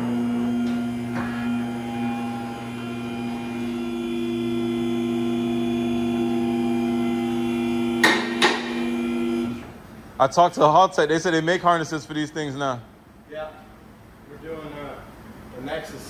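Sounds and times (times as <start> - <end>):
electric motor humming: 0.0 - 9.7.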